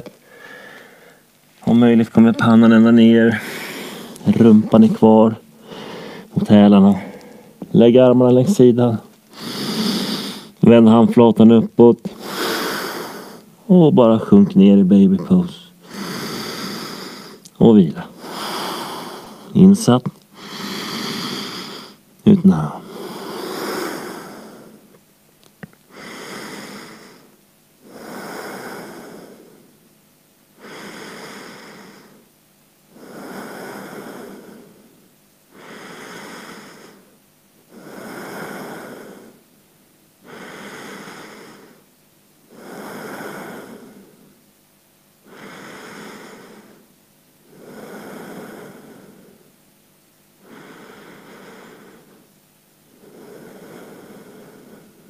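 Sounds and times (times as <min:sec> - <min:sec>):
person breathing slowly: 0:00.2 - 0:01.3, 0:03.3 - 0:04.3, 0:05.6 - 0:06.4, 0:07.0 - 0:07.6, 0:09.3 - 0:10.6, 0:12.1 - 0:13.5, 0:15.8 - 0:17.4, 0:18.1 - 0:19.5, 0:20.3 - 0:22.0, 0:22.8 - 0:24.9, 0:25.9 - 0:29.8, 0:30.6 - 0:32.3, 0:32.9 - 0:39.5, 0:40.2 - 0:41.8, 0:42.5 - 0:44.4, 0:45.2 - 0:46.9, 0:47.5 - 0:49.5, 0:50.4 - 0:52.3, 0:52.9 - 0:55.0.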